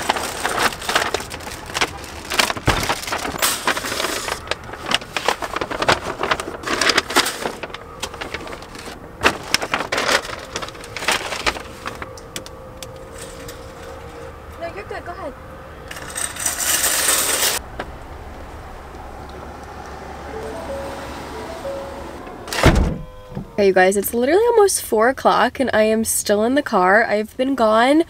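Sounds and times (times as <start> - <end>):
paper bags rustling: 0.0 - 14.4, 15.9 - 17.6
knocks and thuds: 22.6 - 23.5.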